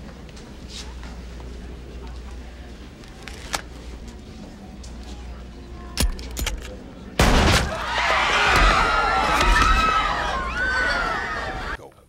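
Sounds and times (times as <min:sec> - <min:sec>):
crowd shouting and cheering: 0:07.7 - 0:11.8.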